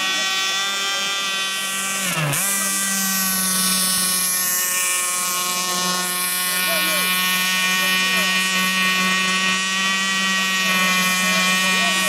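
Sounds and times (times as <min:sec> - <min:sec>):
model boat engine whining: 0:00.0 - 0:12.0.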